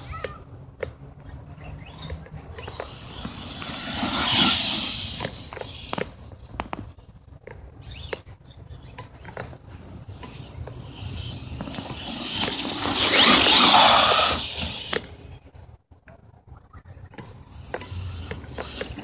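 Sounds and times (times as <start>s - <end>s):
rc truck motor whirring: 1.6s - 6.3s, 9.6s - 15.4s, 17.4s - 19.0s.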